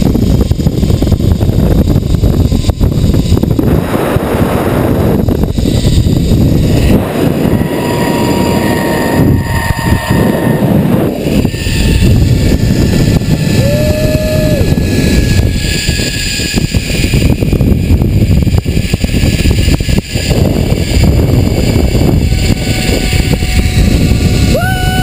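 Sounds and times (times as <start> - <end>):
wind buffeting microphone: 0.0 - 25.0
brief held tone: 6.7 - 12.2.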